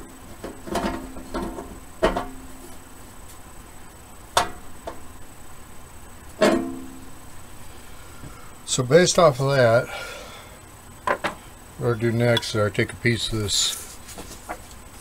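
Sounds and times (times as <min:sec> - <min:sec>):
metal cabinet ringing: 0:06.4 - 0:07.0.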